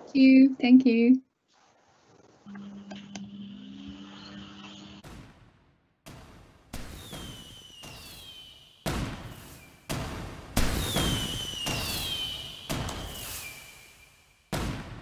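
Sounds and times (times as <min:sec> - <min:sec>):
fireworks bangs: 0:05.0 - 0:15.0
falling firework whistles: 0:06.8 - 0:14.7.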